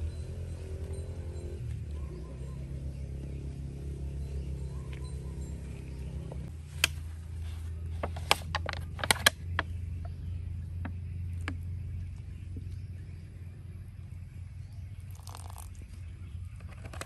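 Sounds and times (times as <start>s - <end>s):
steady low hum: 0.0s - 17.0s
plastic bottle clicks and crackles: 8.0s - 9.7s.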